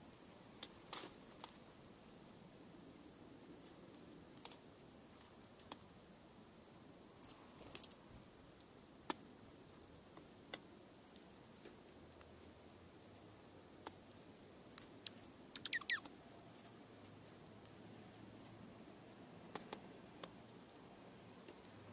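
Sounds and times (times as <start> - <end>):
bird twittering: 7.2 - 8.0, 15.0 - 16.1.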